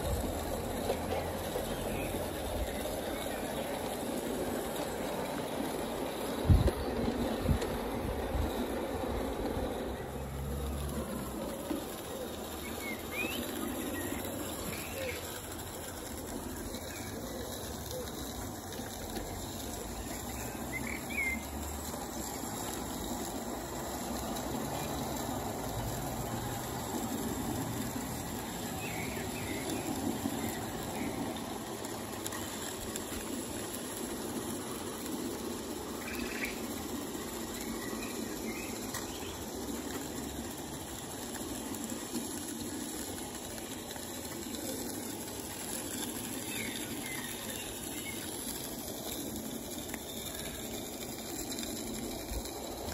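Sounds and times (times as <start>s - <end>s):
steam locomotive exhaust: 0.0s - 52.9s
wheels on rails: 0.0s - 52.9s
bird chirps: 12.6s - 15.3s.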